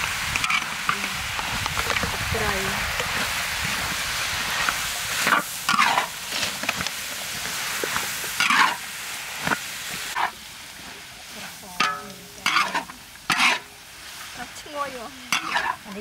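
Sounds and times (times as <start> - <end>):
vegetables sizzling in a wok: 0.0 - 16.0
metal spatula scraping wok: 4.5 - 6.8, 7.6 - 8.8, 11.3 - 13.8, 14.5 - 16.0.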